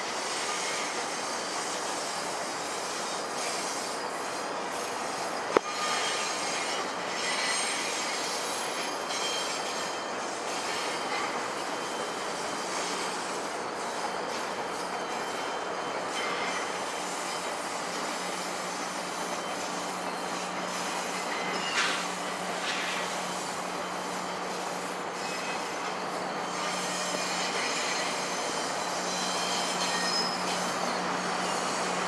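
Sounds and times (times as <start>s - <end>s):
train wheels rumbling on rails: 0.0s - 32.0s
faint wheel squeal: 0.2s - 32.0s.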